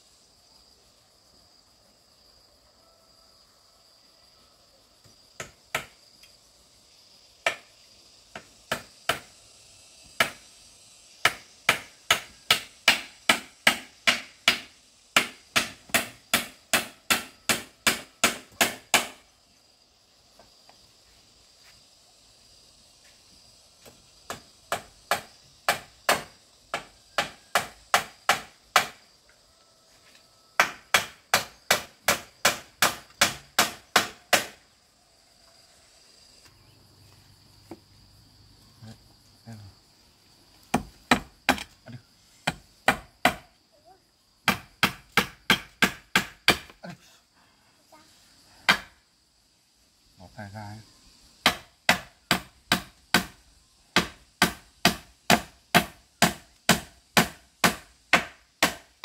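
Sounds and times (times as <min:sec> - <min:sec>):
insects chirping: 0:00.0 - 0:59.0
hand tool striking wood: 0:05.4 - 0:06.0, 0:07.4 - 0:07.7, 0:08.3 - 0:09.3, 0:10.1 - 0:10.4, 0:11.2 - 0:19.2, 0:23.8 - 0:29.0, 0:30.6 - 0:34.6, 0:40.7 - 0:41.8, 0:42.4 - 0:43.5, 0:44.4 - 0:46.8, 0:48.7 - 0:49.0, 0:51.4 - 0:53.4, 0:54.0 - 0:59.0.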